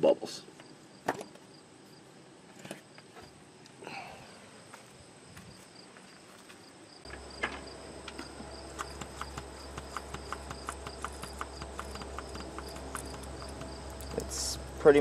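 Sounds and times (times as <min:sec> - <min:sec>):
low steady hum: 0:07.0 - 0:15.0
rapid light ticking: 0:08.2 - 0:15.0.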